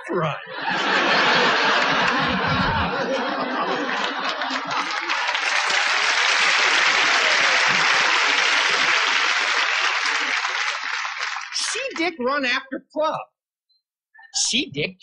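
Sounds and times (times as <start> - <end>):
audience laughing: 0.1 - 11.9
audience applauding: 1.0 - 12.1.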